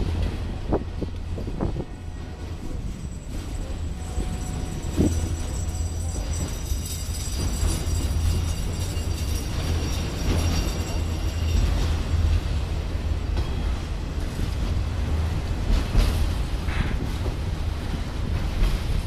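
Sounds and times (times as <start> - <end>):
train wheels rolling on rails: 0.0 - 19.0
faint high ringing: 2.3 - 12.6.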